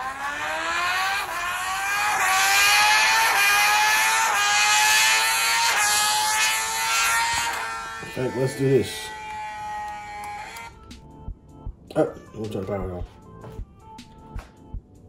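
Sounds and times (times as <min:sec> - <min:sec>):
motorcycle engine revving: 0:00.0 - 0:11.0.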